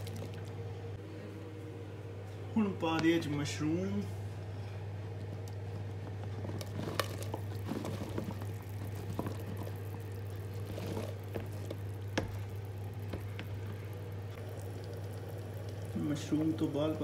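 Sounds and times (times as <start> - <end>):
curry bubbling: 0.0 - 0.7, 5.0 - 17.0
steady low hum: 0.0 - 17.0.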